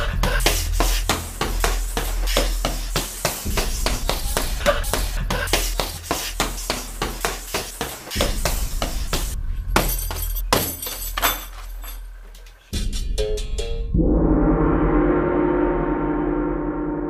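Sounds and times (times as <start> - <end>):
low steady drone: 0.0 - 6.6, 13.9 - 17.0.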